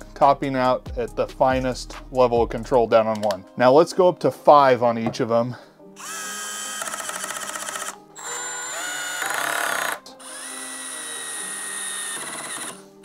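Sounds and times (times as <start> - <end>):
cordless drill driving screws: 6.0 - 12.9.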